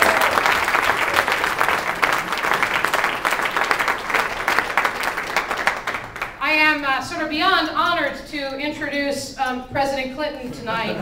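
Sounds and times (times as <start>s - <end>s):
crowd applauding: 0.0s - 6.4s.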